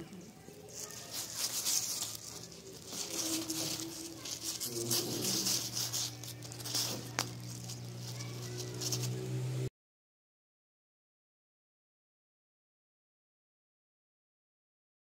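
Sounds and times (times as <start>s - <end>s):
rice grains rustling under paws: 0.3s - 9.7s.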